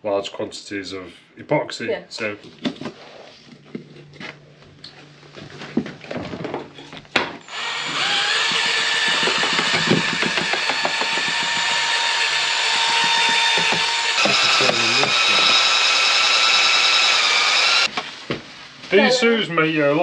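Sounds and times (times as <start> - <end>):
electric drill motor whine: 7.4 - 17.9.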